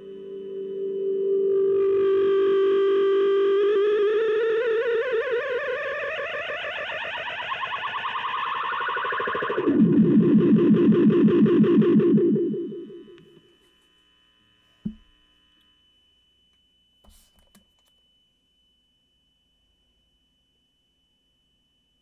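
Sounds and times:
distorted electric guitar: 0:00.0 - 0:13.4
knock: 0:14.8 - 0:15.1.

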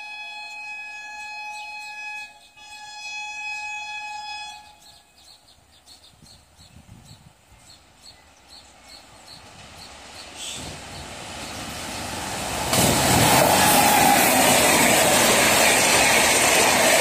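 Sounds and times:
train horn blasts: 0:00.0 - 0:05.1
train rumbling past: 0:04.2 - 0:17.0.

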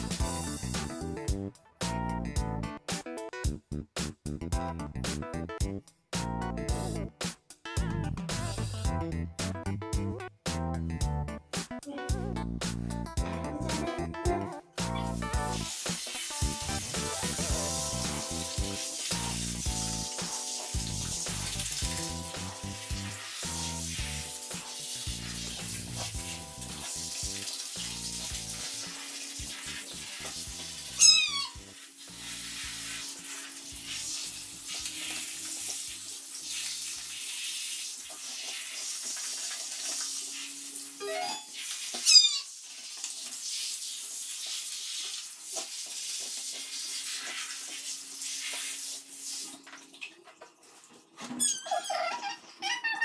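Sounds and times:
shower head spraying water: 0:14.8 - 0:49.8
cat meowing: 0:31.0 - 0:31.6, 0:42.0 - 0:42.5.

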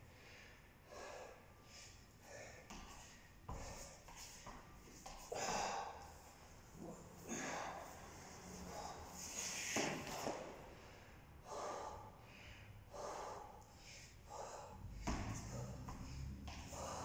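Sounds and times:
man breathing heavily: 0:00.0 - 0:17.0.

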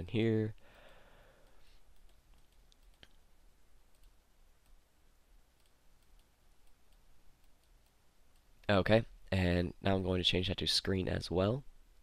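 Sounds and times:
computer mouse clicks: 0:01.4 - 0:03.2, 0:03.9 - 0:04.8, 0:05.6 - 0:08.5.

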